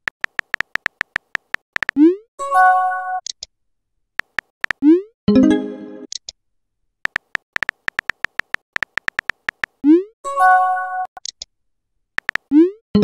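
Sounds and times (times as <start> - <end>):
keyboard tap clicks: 0.1 - 2.0, 4.2 - 4.8, 7.0 - 9.8, 12.2 - 12.5.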